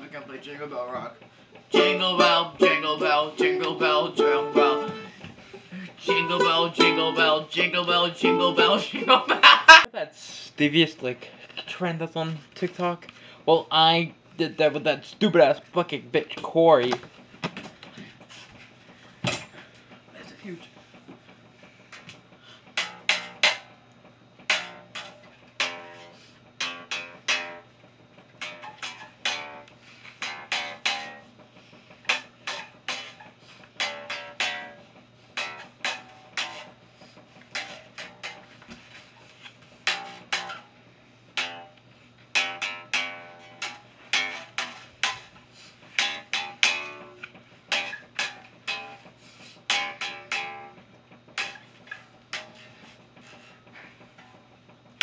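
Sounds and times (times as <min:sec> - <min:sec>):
electric guitar strummed: 0:33.8 - 0:36.7, 0:41.4 - 0:45.2, 0:49.7 - 0:50.8.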